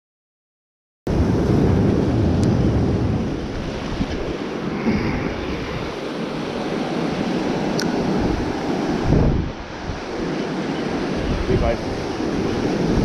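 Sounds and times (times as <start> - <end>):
waves washing over rocks: 1.1 - 13.0
wind buffeting microphone: 1.1 - 13.0.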